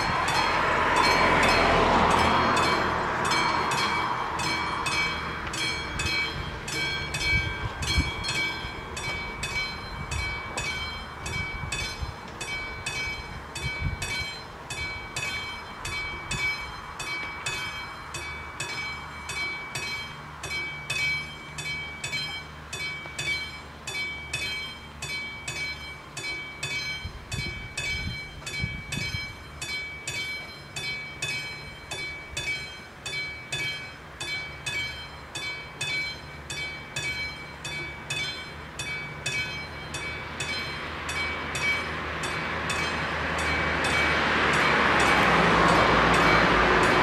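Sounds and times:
level crossing warning bell: 0:00.0 - 0:47.0
car tyre and engine noise: 0:39.2 - 0:47.0.

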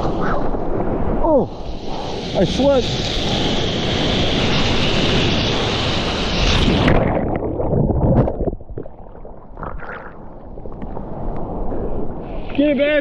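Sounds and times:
wind on microphone: 0:00.0 - 0:13.0
underwater rumble: 0:05.9 - 0:12.4
underwater thuds: 0:06.8 - 0:11.0.

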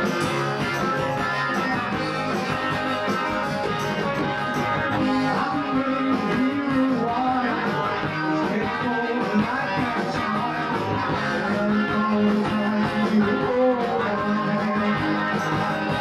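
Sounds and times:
electric guitar: 0:00.0 - 0:16.0
rock band playing live: 0:00.0 - 0:16.0.

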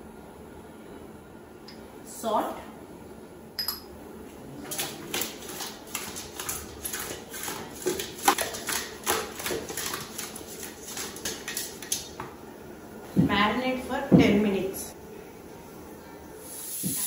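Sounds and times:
fish slapping against metal pot: 0:04.7 - 0:12.2.

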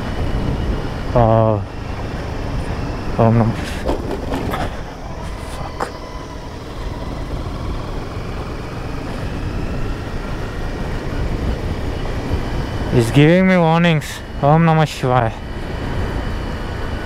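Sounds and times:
wind noise: 0:00.0 - 0:13.2
motorcycle engine running: 0:00.0 - 0:17.0
road noise: 0:00.0 - 0:17.0.

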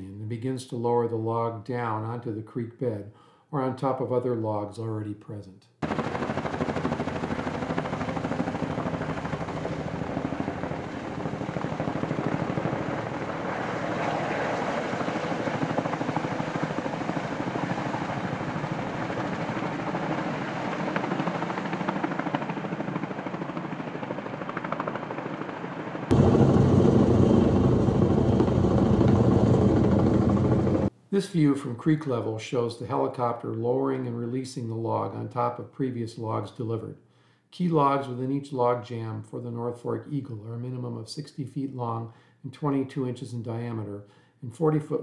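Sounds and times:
helicopter rotors chopping: 0:05.8 - 0:30.9.

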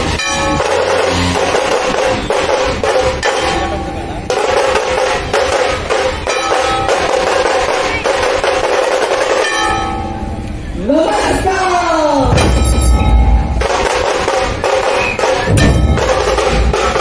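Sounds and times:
ensemble drumming fast rhythm: 0:00.5 - 0:09.4, 0:12.3 - 0:17.0.

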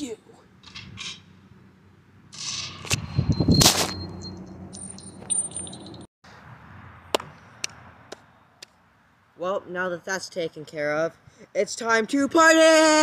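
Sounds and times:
high ringing tone: 0:03.0 - 0:06.1.

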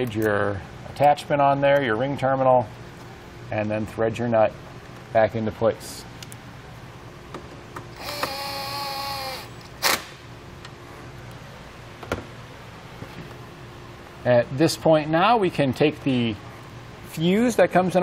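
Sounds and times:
power driver motor whine: 0:07.9 - 0:10.1.

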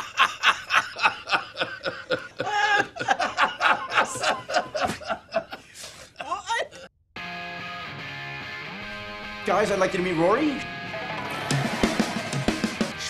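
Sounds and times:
man laughing hard: 0:00.0 - 0:06.8.

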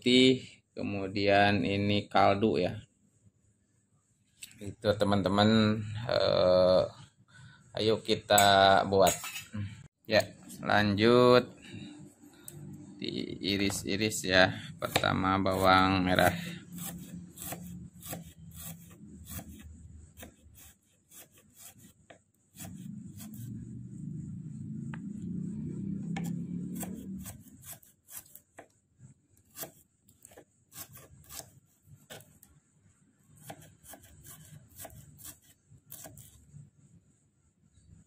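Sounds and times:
low hum: 0:22.6 - 0:27.4.

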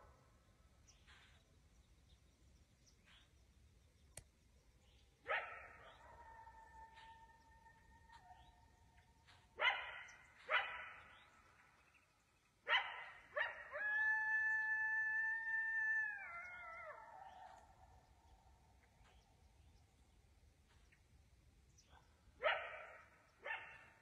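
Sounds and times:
coyote barking: 0:05.2 - 0:11.8, 0:12.6 - 0:15.0, 0:21.8 - 0:24.0
coyote howling: 0:12.7 - 0:18.0.

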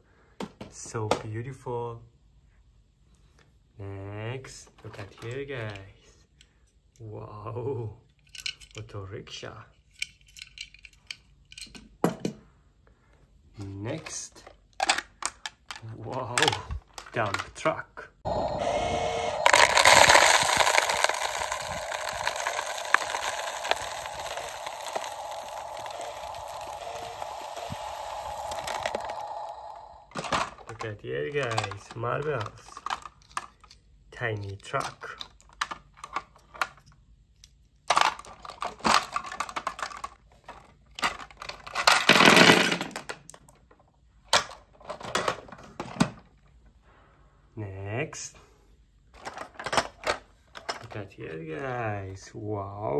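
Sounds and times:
marbles and toy cars rattling: 0:08.2 - 0:08.9, 0:09.9 - 0:11.8, 0:18.3 - 0:33.6, 0:37.9 - 0:40.2, 0:41.0 - 0:43.4.

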